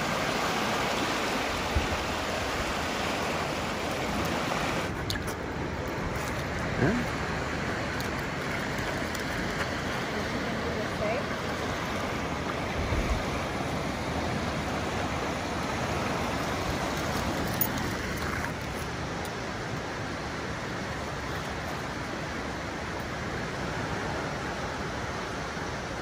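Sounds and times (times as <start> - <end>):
water trickling over rock: 0.0 - 13.6, 15.0 - 20.0
gentle surf on rocks: 0.0 - 26.0.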